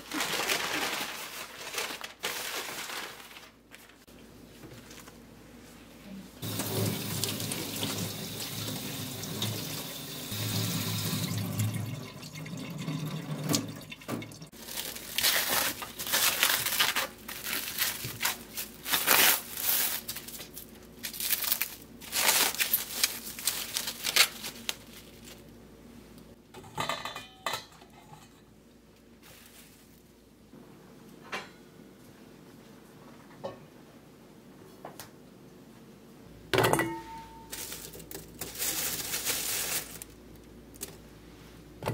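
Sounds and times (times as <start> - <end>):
cling wrap crackling: 0.0 - 4.1, 14.5 - 25.5, 29.2 - 30.1, 37.5 - 40.9
tap water running: 6.4 - 14.6.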